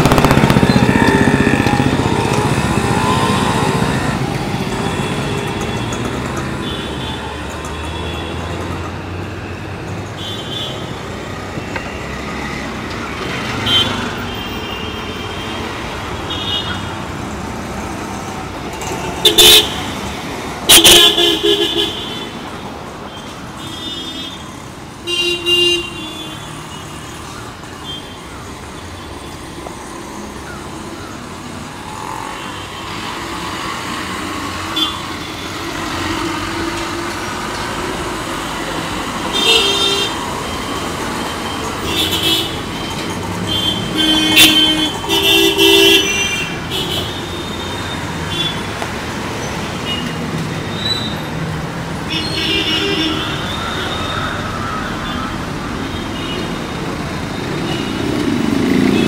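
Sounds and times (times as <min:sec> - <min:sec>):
rumble of passing vehicles: 0:00.0 - 0:59.0
car horn honks: 0:20.7 - 0:22.3, 0:43.5 - 0:47.6.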